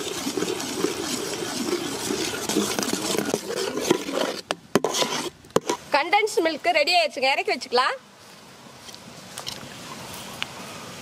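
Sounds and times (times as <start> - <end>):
ladle scraping and sloshing milk: 0.0 - 6.0.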